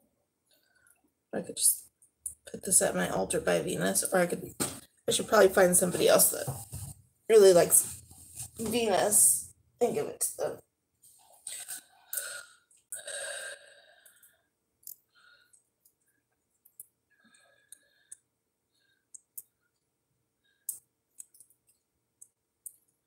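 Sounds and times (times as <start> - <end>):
breathy noise: 11.3 - 15.7
beaded bracelet clicking: 20.7 - 22.9.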